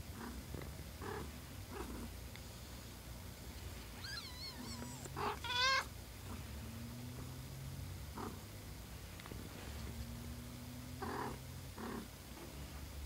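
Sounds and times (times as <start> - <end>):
cat purring: 0.0 - 2.2, 3.8 - 8.5, 9.3 - 13.0
kittens mewing: 3.9 - 5.9.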